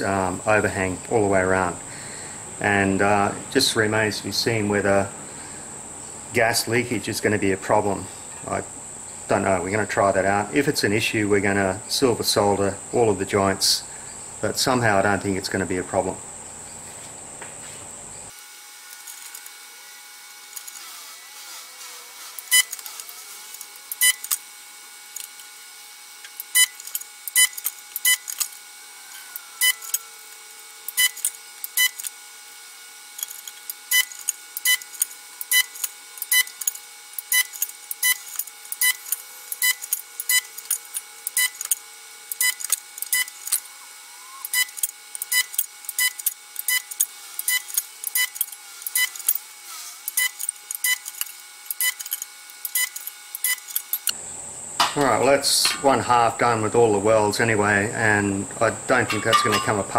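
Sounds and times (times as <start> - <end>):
faint steady hum: 0.0 - 59.9
spot welder clicks: 20.5 - 25.6, 26.2 - 32.2, 33.1 - 43.7, 44.4 - 54.2, 54.8 - 56.3, 59.0 - 59.9.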